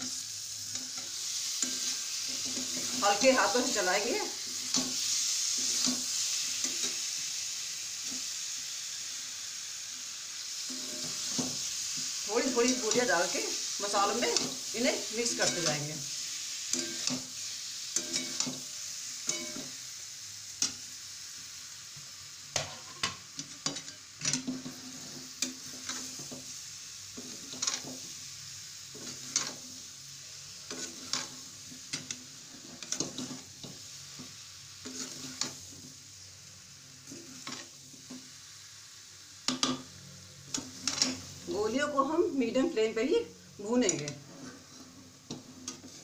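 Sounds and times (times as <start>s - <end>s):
food sizzling in oil: 0.0s - 46.0s
spatula knocking and scraping pan: 15.2s - 15.9s, 16.7s - 17.3s, 18.0s - 18.7s.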